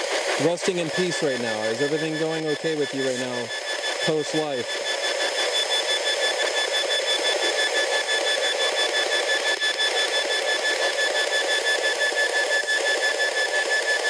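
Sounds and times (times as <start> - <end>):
radio static: 0.3 - 10.9
faint pulsing high tone: 0.8 - 14.0.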